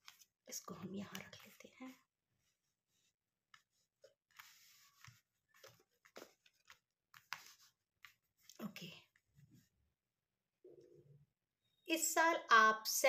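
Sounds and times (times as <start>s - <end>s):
cards rustling and tapping on cloth: 0.0s - 2.0s, 3.4s - 8.7s.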